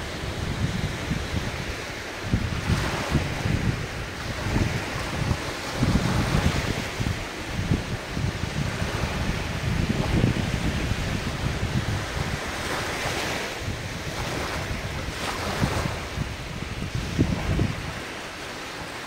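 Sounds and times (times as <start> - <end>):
ocean waves washing on shore: 0.0 - 19.0
wind buffeting microphone: 0.0 - 19.0.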